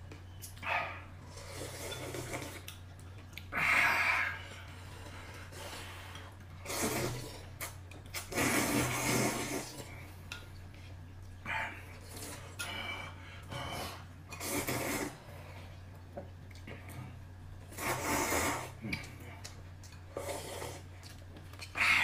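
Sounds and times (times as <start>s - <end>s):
low steady hum: 0.0s - 22.0s
slurping noodles: 1.2s - 2.7s, 4.2s - 10.0s, 13.5s - 15.6s, 17.7s - 19.1s, 20.1s - 20.9s.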